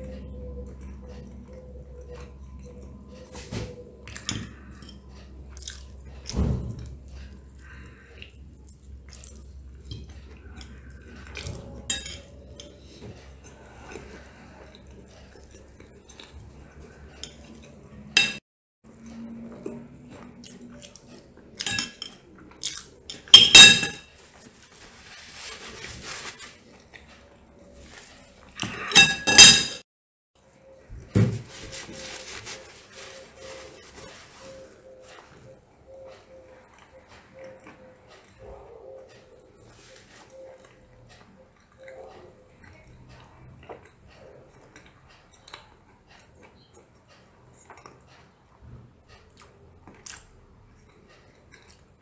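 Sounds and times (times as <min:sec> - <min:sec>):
cutlery scraping on plate: 0:10.6 - 0:13.5, 0:17.2 - 0:18.4, 0:21.6 - 0:22.2, 0:23.1 - 0:24.1, 0:28.6 - 0:29.8.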